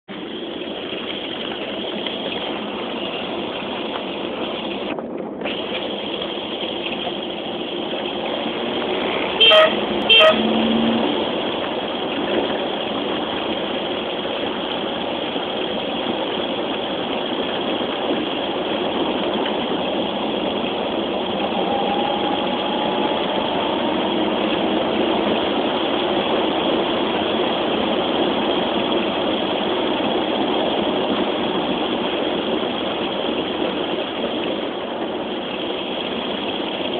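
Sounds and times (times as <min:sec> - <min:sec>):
road noise: 0:00.0 - 0:36.9
car engine running: 0:00.1 - 0:36.9
car horn toots: 0:09.4 - 0:11.0, 0:21.3 - 0:25.1.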